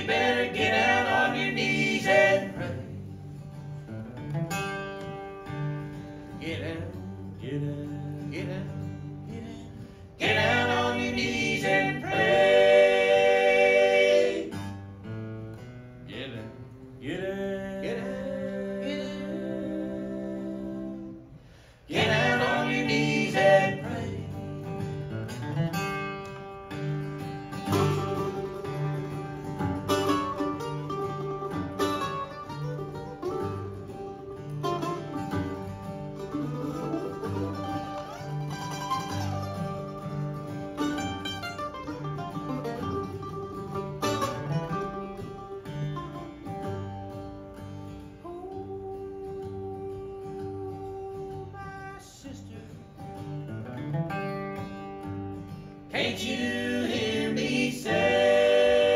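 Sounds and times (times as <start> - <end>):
mandolin: 0.0 - 17.0, 17.7 - 58.9
strummed acoustic guitar: 0.0 - 58.9
man singing: 6.4 - 12.3, 16.1 - 21.1, 21.9 - 24.4, 48.3 - 53.0
fiddle: 26.2 - 48.5.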